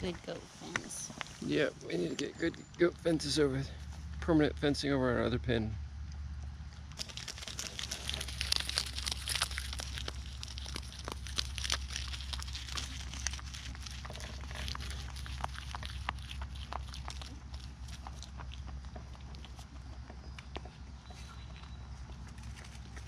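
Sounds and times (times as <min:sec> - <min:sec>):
goats chewing leaves: 0:06.9 - 0:23.0.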